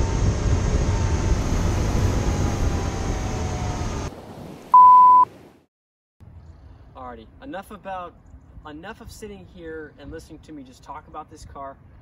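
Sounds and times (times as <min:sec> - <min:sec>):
test-tone beep: 0:04.8 - 0:05.3.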